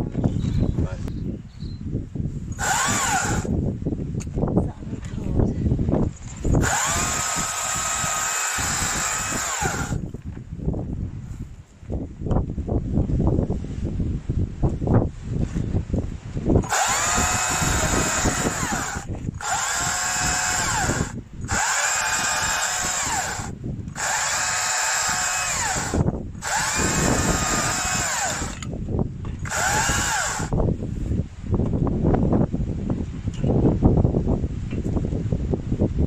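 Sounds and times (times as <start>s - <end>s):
battery chainsaw cutting log: 2.6s - 3.5s, 6.5s - 10.0s, 16.6s - 28.7s, 29.4s - 30.6s.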